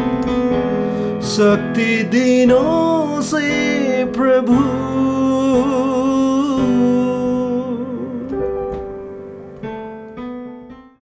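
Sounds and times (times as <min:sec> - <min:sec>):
keyboard chords: 0:00.0 - 0:11.0
person singing with vibrato: 0:01.1 - 0:09.0.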